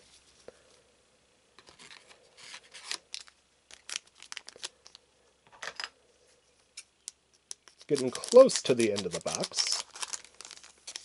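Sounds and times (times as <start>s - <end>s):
foil wrapper crinkling: 1.7s - 5.0s, 7.0s - 11.0s.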